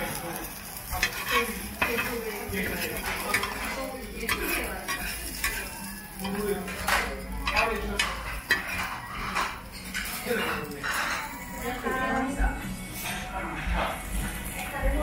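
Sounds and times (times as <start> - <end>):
food sizzling: 0.0 - 15.0
metal spatulas scraping griddle: 0.4 - 11.9.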